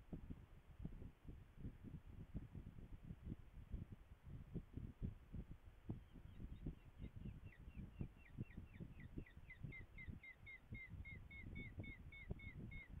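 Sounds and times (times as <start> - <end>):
wind buffeting microphone: 0.0 - 13.0
bird of prey calling: 6.6 - 13.0.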